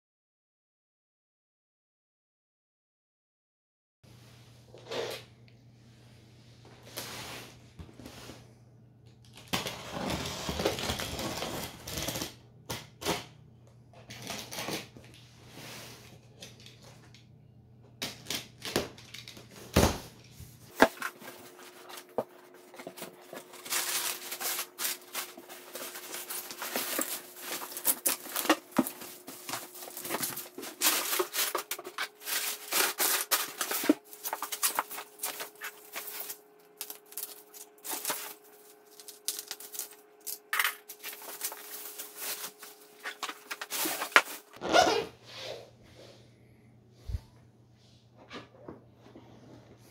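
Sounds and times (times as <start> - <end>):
knife slitting packing tape: 9.5 - 13.3
cardboard and paper rustling: 18.9 - 44.6
bubble wrap crinkling: 20.7 - 44.6.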